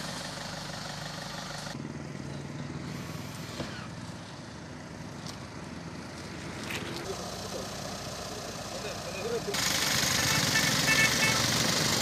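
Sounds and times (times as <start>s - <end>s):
roadside background noise: 0.0s - 12.0s
vehicle engine idling: 0.0s - 12.0s.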